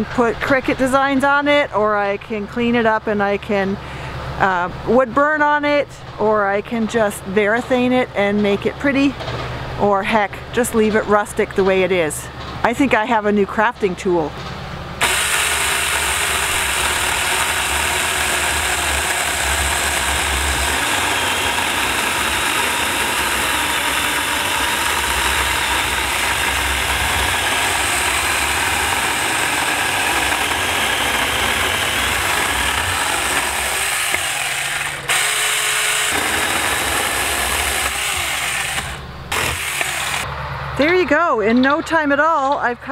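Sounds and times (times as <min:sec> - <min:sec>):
electric chainsaw cutting wood: 0:15.0 - 0:40.3.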